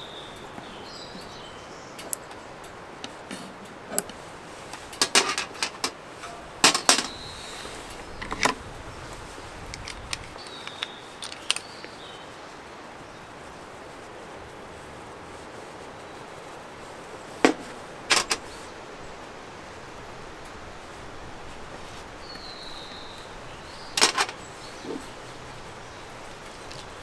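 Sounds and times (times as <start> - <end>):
steady outdoor hiss: 0.0 - 27.0
sharp clicks and knocks: 3.0 - 7.2, 17.4 - 18.5, 24.0 - 25.1.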